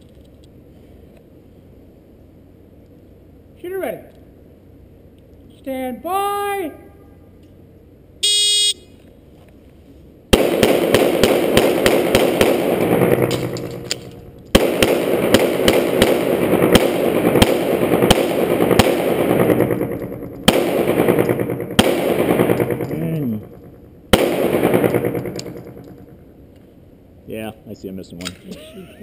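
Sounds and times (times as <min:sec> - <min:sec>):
shot timer beep: 0:08.2 - 0:08.8
pistol shots echoing indoors: 0:10.3 - 0:26.2.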